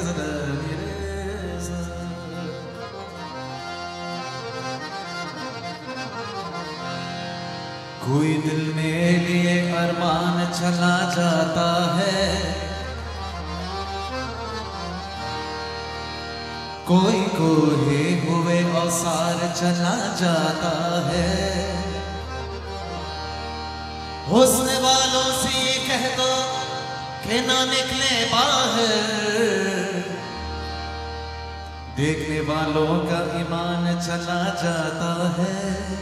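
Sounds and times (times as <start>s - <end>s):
man singing: 0.0s - 3.3s, 8.0s - 13.6s, 16.8s - 23.1s, 24.2s - 30.5s, 31.9s - 36.0s
harmonium and keyboard drone: 0.0s - 36.0s.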